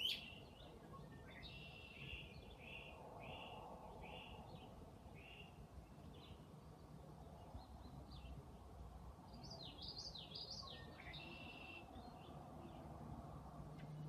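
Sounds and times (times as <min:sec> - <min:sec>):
low steady background noise: 0:00.0 - 0:14.0
faint bird chirps: 0:09.4 - 0:12.3.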